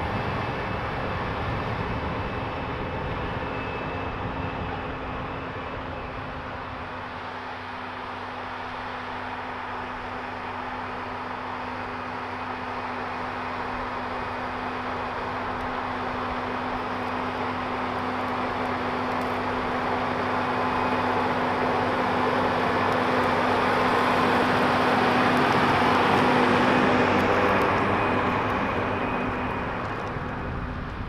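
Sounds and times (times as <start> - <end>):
tractor diesel engine under load: 7.0 - 31.0.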